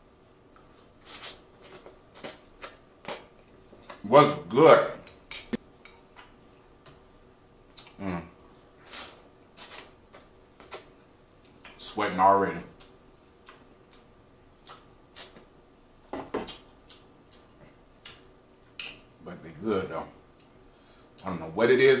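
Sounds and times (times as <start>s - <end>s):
short vocal sounds: 7.8s - 8.4s.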